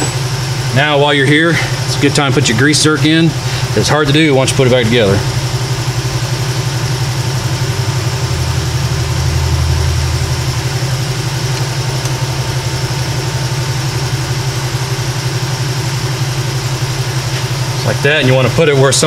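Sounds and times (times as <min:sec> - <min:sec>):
shop machinery droning: 0:00.0 - 0:19.0
deep hum: 0:04.6 - 0:19.0.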